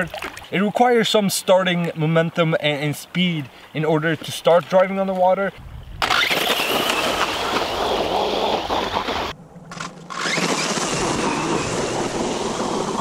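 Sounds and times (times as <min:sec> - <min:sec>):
electric motor whining: 0:10.1 - 0:13.0
paddle wheels churning water: 0:10.2 - 0:13.0.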